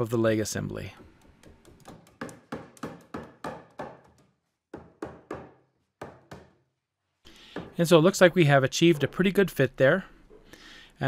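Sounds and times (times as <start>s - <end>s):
sharp knocks on plywood: 1.4s - 6.6s.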